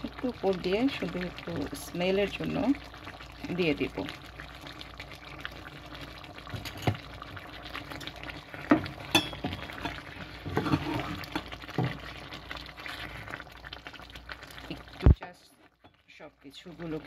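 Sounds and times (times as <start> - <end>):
curry simmering in frying pan: 0.0 - 17.0
wooden spatula scraping pan: 8.7 - 12.0.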